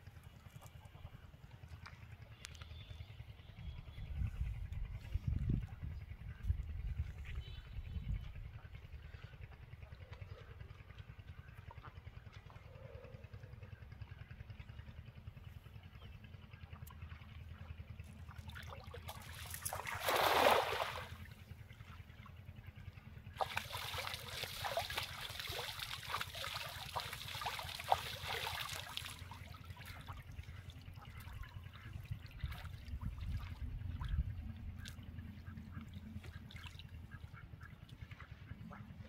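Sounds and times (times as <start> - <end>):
low rumble: 0.4 - 19.0, 29.2 - 39.0
net hauled through water sloshing: 18.1 - 21.3, 23.4 - 35.0, 35.8 - 37.0
cast net splashing onto water: 18.5 - 21.2, 23.4 - 30.1.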